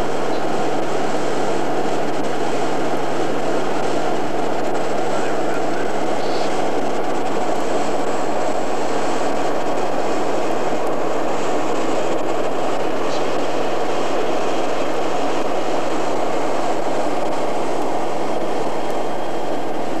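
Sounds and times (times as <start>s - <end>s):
turboprop aircraft flying overhead: 0.0s - 20.0s.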